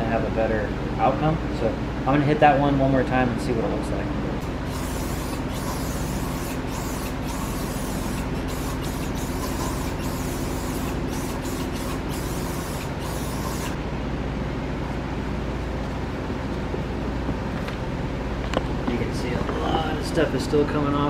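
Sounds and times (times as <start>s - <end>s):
steady low hum: 0.0s - 21.0s
aerosol can spraying: 4.6s - 13.8s.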